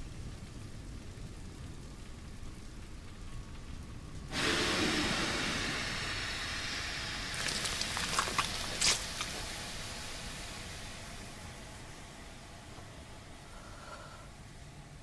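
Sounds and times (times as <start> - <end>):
loud hiss of steam: 4.3 - 14.4
sharp crackles: 7.3 - 10.2.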